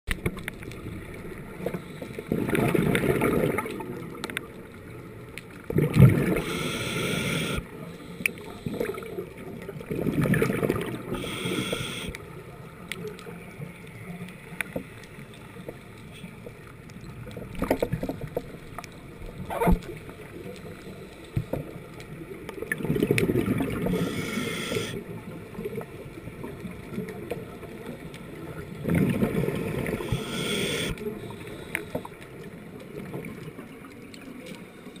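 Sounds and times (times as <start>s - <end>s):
exhaled bubbles rumbling underwater: 0.1s - 35.0s
regulator hiss: 6.4s - 8.8s, 11.1s - 12.1s, 23.9s - 25.0s, 30.0s - 32.0s.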